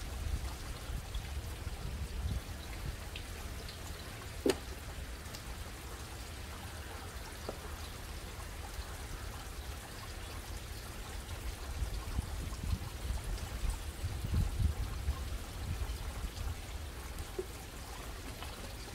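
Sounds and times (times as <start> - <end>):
water trickling and splashing: 0.0 - 18.9.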